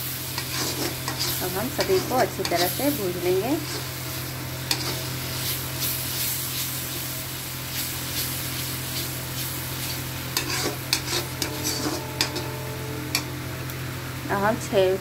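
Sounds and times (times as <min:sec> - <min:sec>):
masala sizzling in hot oil: 0:00.0 - 0:15.0
steady low hum: 0:00.0 - 0:15.0
spatula scraping a pan: 0:00.2 - 0:04.0, 0:04.6 - 0:06.8, 0:08.2 - 0:13.3.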